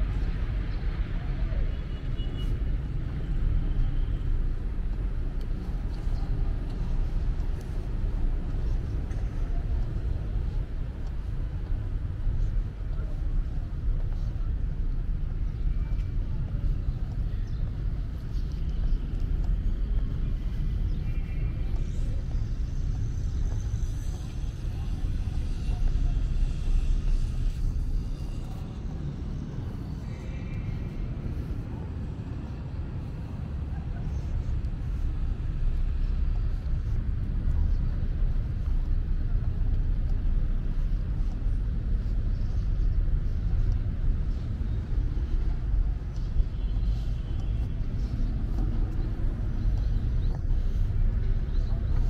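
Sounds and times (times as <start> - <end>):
low fluttering outdoor rumble: 0.0 - 52.0.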